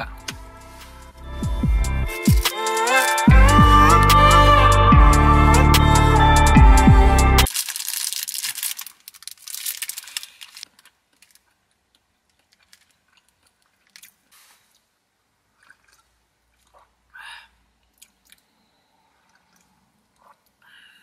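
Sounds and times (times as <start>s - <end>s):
outro music: 0.0s - 7.5s
plastic wrapper crinkling: 7.5s - 14.7s
faint chewing: 9.9s - 14.9s, 15.6s - 17.2s, 17.8s - 20.6s.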